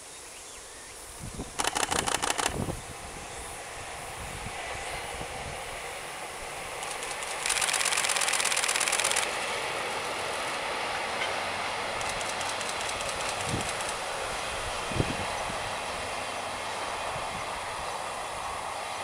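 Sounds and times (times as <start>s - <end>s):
passenger train rolling past: 0.7s - 19.0s
wheels clacking over rails: 1.6s - 2.7s, 6.7s - 14.4s
loud rapid pulsing buzz: 1.6s - 2.8s, 6.8s - 9.4s.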